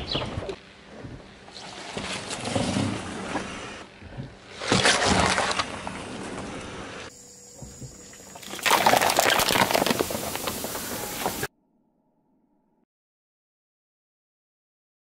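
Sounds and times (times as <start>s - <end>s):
liquid splashing: 4.5s - 6.2s, 8.3s - 11.5s
plastic cups crumpling: 8.4s - 11.5s
tyre crushing watermelon: 8.4s - 11.5s.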